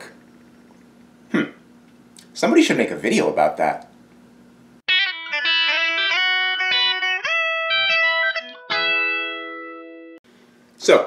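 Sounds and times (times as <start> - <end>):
electric guitar chord ringing: 4.9 - 10.2
electric guitar picked notes: 4.9 - 10.2.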